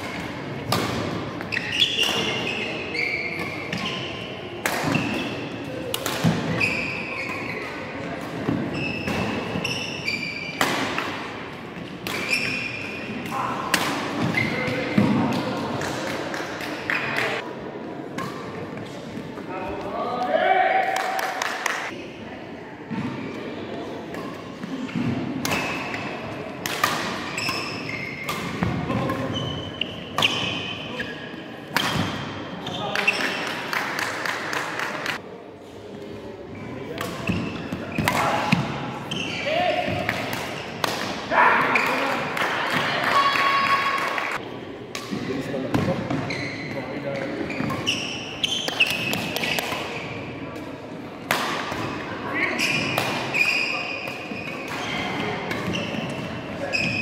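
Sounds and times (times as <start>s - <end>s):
rackets hitting shuttlecock: 0.0s - 2.7s, 4.6s - 11.2s, 11.8s - 17.4s, 24.1s - 30.7s, 31.7s - 35.2s, 36.9s - 42.9s, 47.1s - 57.0s
court shoes squeaking: 0.0s - 17.4s, 22.9s - 35.2s, 35.8s - 43.8s, 44.4s - 50.7s, 51.3s - 57.0s
shoe squeaks on court floor: 1.4s - 4.3s, 6.5s - 7.9s, 8.6s - 10.6s, 12.2s - 13.1s, 27.2s - 33.5s, 39.1s - 39.9s, 46.1s - 50.2s, 52.5s - 57.0s.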